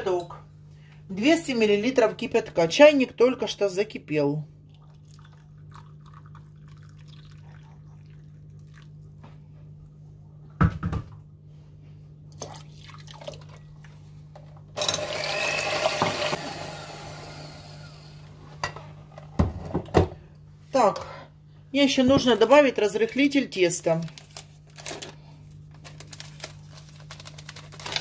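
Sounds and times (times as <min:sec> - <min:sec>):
water pouring into cup: 0:04.6 - 0:09.0, 0:12.3 - 0:13.6
water pouring into bowl: 0:04.7 - 0:09.0, 0:12.3 - 0:13.6.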